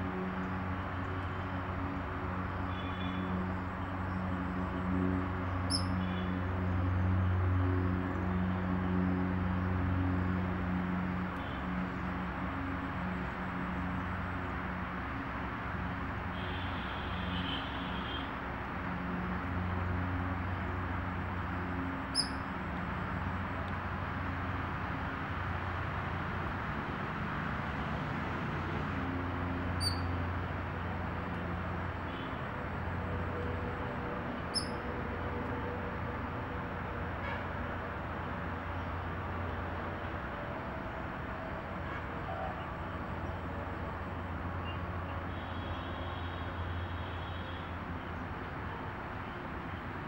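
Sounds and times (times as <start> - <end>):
distant traffic: 0.0 - 50.0
vehicle engine hum: 0.0 - 50.0
short high bird chirp: 22.2 - 22.4, 29.8 - 30.1.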